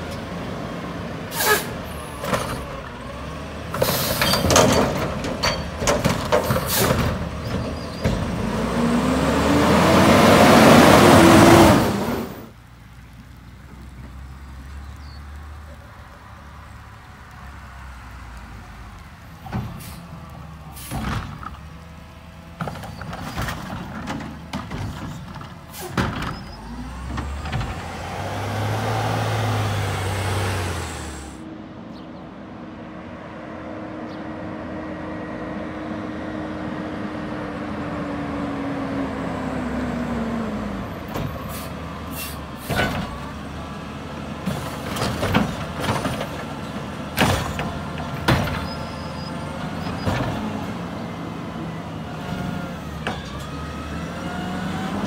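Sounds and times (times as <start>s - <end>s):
truck engine revving: 0.0s - 16.1s, 17.1s - 31.9s, 32.6s - 55.0s
metal clanks and bangs: 3.8s - 8.4s.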